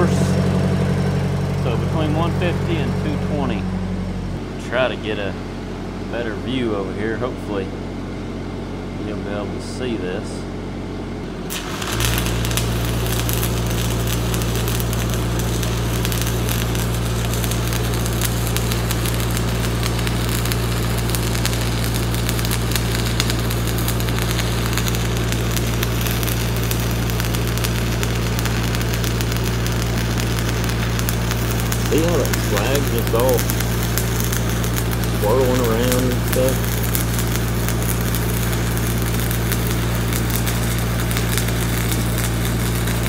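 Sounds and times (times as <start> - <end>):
steady low hum: 0.0 - 43.0
welding arc crackling and sizzling: 11.2 - 43.0.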